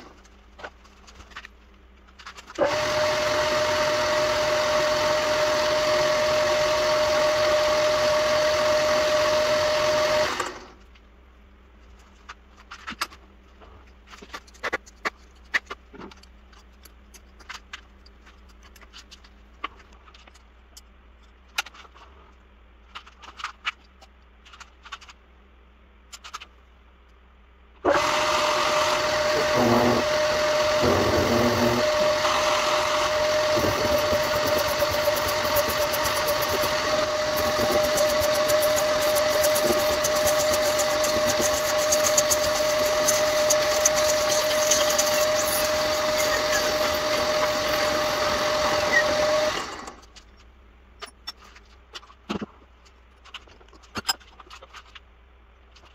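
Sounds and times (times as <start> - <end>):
metal lathe whining: 2.6 - 10.6, 27.9 - 50.0.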